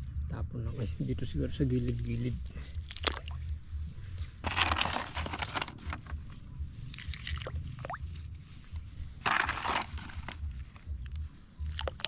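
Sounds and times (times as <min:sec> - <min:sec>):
low rumble: 0:00.0 - 0:12.0
snails rustling and clattering: 0:04.4 - 0:08.2, 0:09.2 - 0:10.8.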